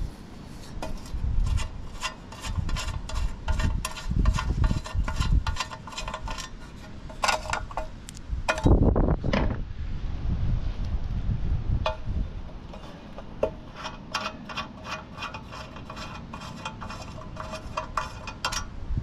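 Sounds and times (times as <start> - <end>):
wind buffeting microphone: 0.0 - 13.8, 15.4 - 19.0
metal bracket clattering: 2.1 - 8.9, 11.9 - 18.7.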